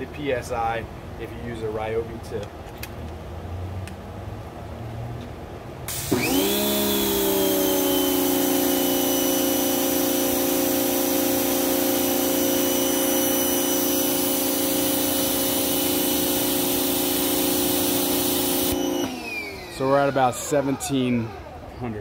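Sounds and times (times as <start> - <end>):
pressure washer motor whine: 5.9 - 22.0.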